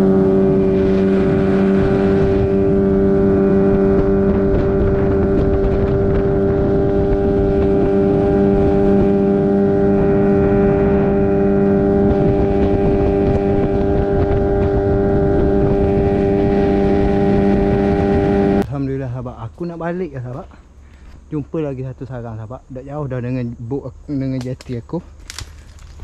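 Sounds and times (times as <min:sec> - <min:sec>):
motorboat engine running: 0:00.0 - 0:18.6
wind on microphone: 0:00.0 - 0:18.8.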